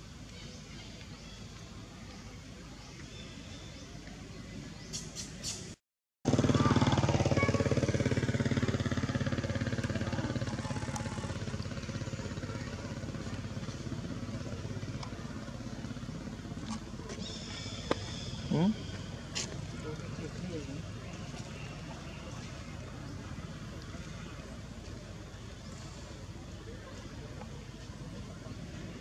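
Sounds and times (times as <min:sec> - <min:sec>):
engine running steadily: 0:06.3 - 0:29.0.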